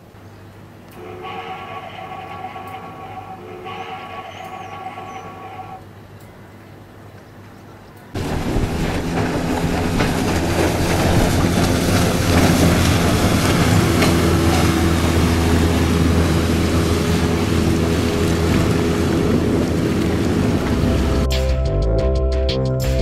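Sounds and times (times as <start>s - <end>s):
rushing water: 0.0s - 6.2s, 8.2s - 21.3s
wind: 0.0s - 21.7s
motorboat engine running: 1.0s - 5.8s, 8.2s - 21.4s.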